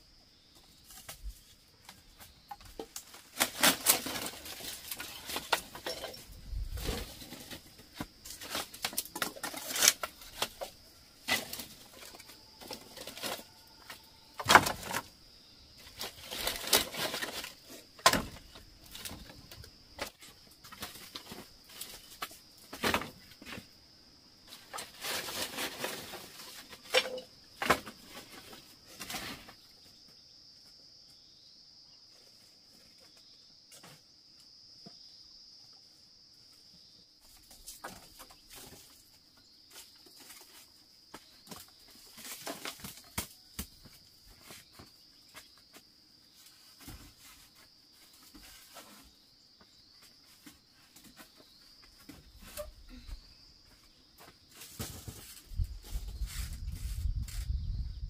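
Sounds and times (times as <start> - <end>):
insects droning: 0.0 - 58.0
handling knocks and rustling: 0.7 - 15.2, 49.8 - 57.8.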